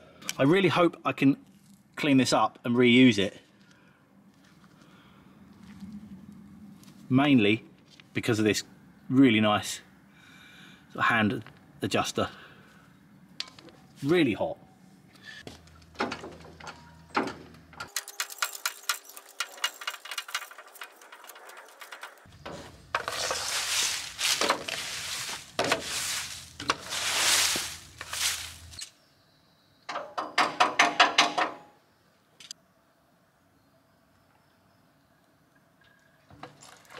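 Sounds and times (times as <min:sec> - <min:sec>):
tools and metal rattling: 0:15.6 - 0:28.9, 0:29.9 - 0:31.7
rusted bolts creaking squeals: 0:16.0 - 0:23.4
sharp metallic knocks: 0:29.9 - 0:31.7.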